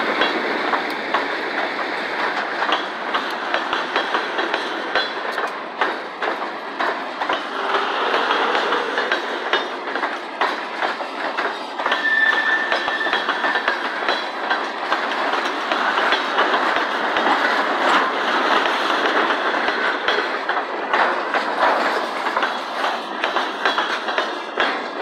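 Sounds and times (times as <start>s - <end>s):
train wheels clattering on rails: 0.0s - 25.0s
clicks over rail joints: 0.2s - 25.0s
wheel squeal: 11.8s - 13.8s.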